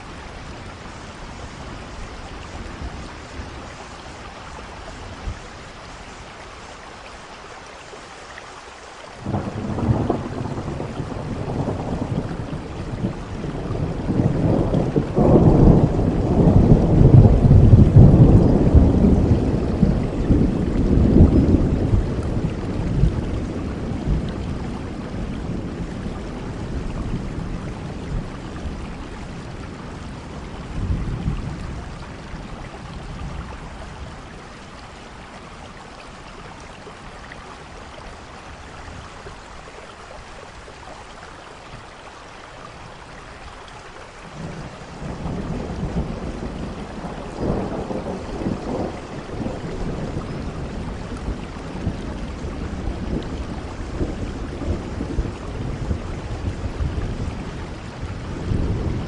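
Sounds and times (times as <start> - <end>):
rain hiss: 0.0 - 59.0
thunder rolling: 9.2 - 28.8, 44.4 - 59.0.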